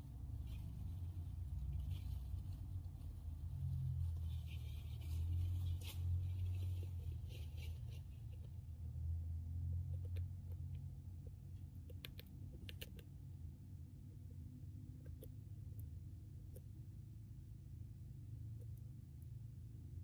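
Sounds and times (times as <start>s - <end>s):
low steady hum: 0.0s - 20.0s
hamster gnawing seeds: 9.8s - 13.2s.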